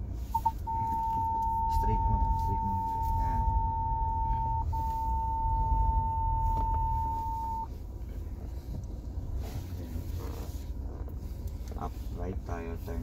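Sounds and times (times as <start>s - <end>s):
diesel engine rumble: 0.0s - 13.0s
parking sensor beep: 0.3s - 7.7s.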